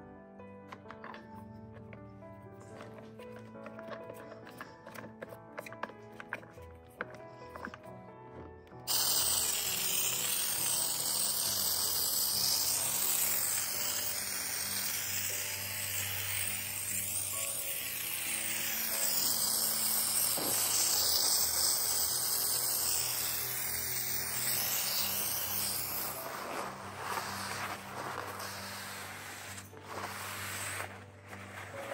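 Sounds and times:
background music: 0:00.0 - 0:31.9
motorised appliance whirring: 0:08.7 - 0:31.9.

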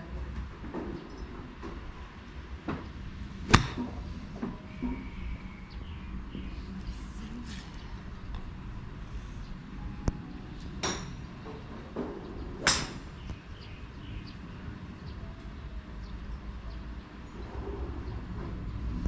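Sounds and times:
steady low rumble: 0:02.5 - 0:11.4
golf club hitting ball: 0:03.4 - 0:04.0, 0:12.6 - 0:13.0.

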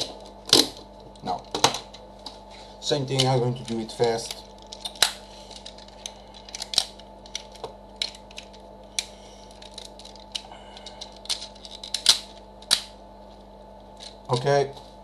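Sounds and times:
plastic toy parts clicking: 0:04.3 - 0:12.9.

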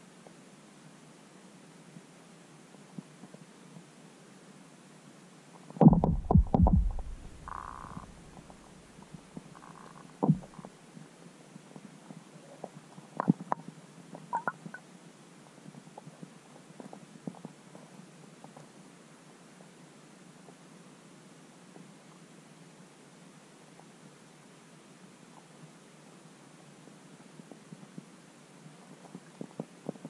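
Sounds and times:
faint steady hiss: 0:00.0 - 0:30.0
low rumbling thumps under ice: 0:05.8 - 0:08.6, 0:10.2 - 0:10.6.

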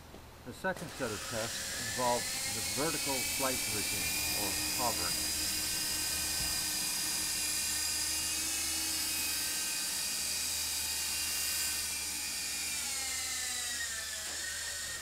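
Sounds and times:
model aircraft propeller whine: 0:00.6 - 0:15.0.

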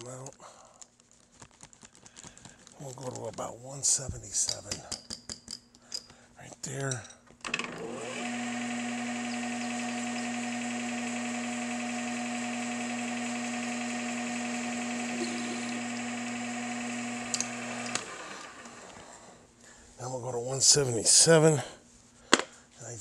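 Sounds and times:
drill cutting into steel: 0:07.6 - 0:19.2
metal lathe humming: 0:07.6 - 0:19.3.

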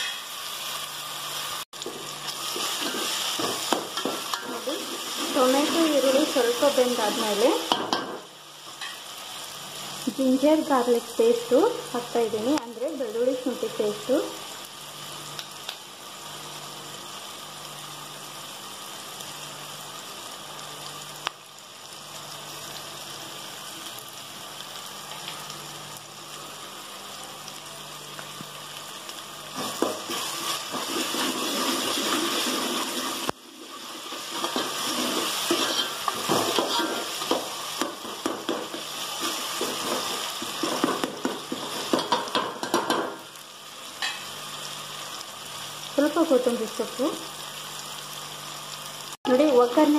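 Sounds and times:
onion and tomato sizzling in oil: 0:00.0 - 0:49.9.

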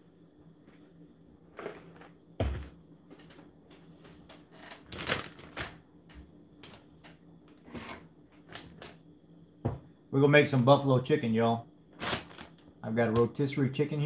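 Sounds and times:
dull thump on table: 0:09.6 - 0:09.8.

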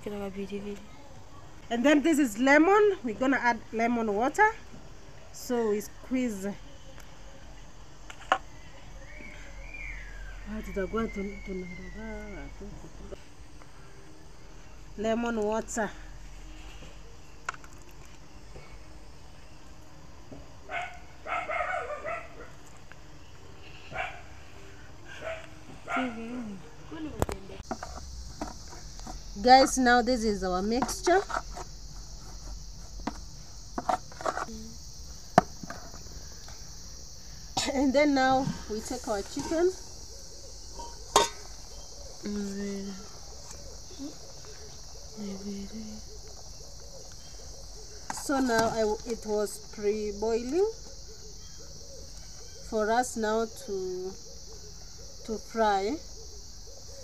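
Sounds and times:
crickets chirring: 0:00.0 - 0:57.0
dog barking: 0:20.7 - 0:22.6, 0:23.9 - 0:24.3, 0:25.1 - 0:26.2.

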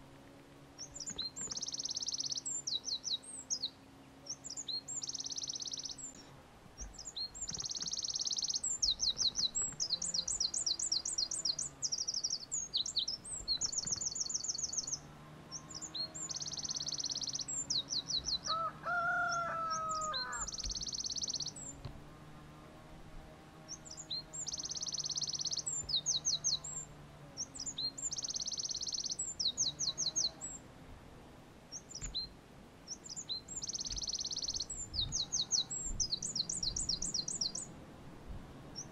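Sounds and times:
wren singing trills: 0:00.8 - 0:21.9, 0:23.6 - 0:30.7, 0:31.7 - 0:37.8.

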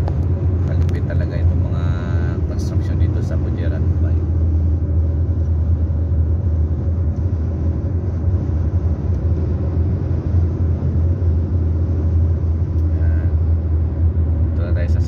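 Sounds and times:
car driving at highway speed: 0:00.0 - 0:15.0.

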